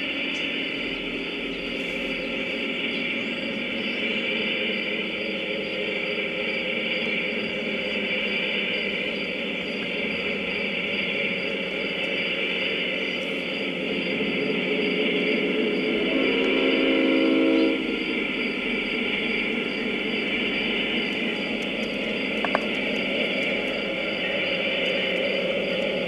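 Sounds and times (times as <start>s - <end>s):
model train running noise: 0.0s - 26.0s
diesel horn blast: 16.0s - 17.8s.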